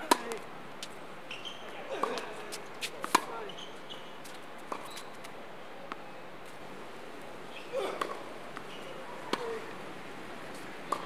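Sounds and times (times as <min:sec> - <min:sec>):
tennis ball bouncing: 0:00.0 - 0:00.4, 0:03.0 - 0:03.4, 0:07.9 - 0:09.6
tennis ball hit with rackets: 0:00.0 - 0:00.4, 0:03.0 - 0:03.4, 0:07.8 - 0:09.6.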